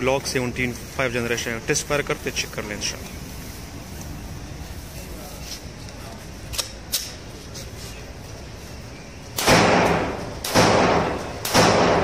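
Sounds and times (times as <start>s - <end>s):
pistol shots echoing in a well: 9.4s - 12.0s.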